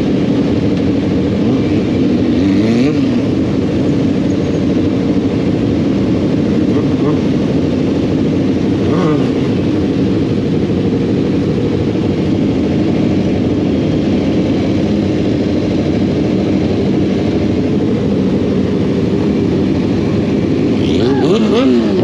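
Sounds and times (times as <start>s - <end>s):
motorcycle engine running: 0.0s - 22.0s.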